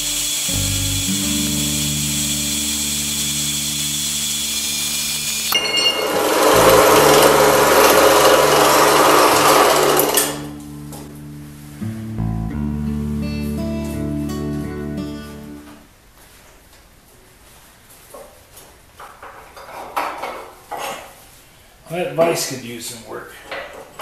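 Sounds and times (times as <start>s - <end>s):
background music: 0.0s - 5.2s, 6.1s - 15.8s
band saw cutting metal: 0.0s - 10.5s.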